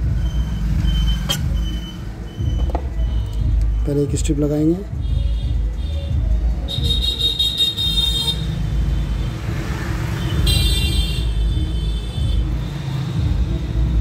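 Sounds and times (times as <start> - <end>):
road traffic rumbling: 0.0 - 14.0
vehicle horn: 6.7 - 8.6, 10.2 - 12.5.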